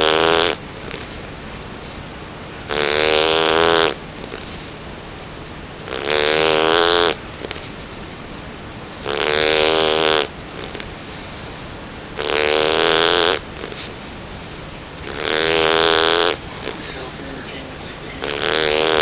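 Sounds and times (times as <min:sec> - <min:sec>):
puppy snoring: 0:00.0 - 0:01.2, 0:02.6 - 0:04.7, 0:05.8 - 0:07.8, 0:09.0 - 0:11.3, 0:12.1 - 0:14.0, 0:15.0 - 0:19.0.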